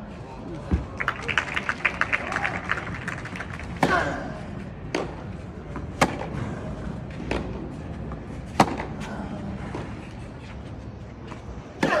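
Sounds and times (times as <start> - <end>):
tennis ball hit by racquets: 4.9 - 6.4, 7.2 - 7.7, 8.5 - 9.0.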